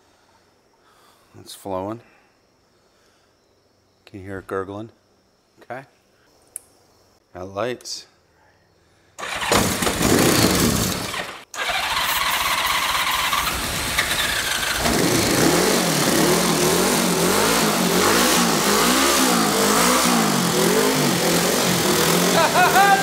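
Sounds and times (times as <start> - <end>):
motorcycle engine cranking: 9.2 - 23.0
engine running rough and revving: 9.5 - 23.0.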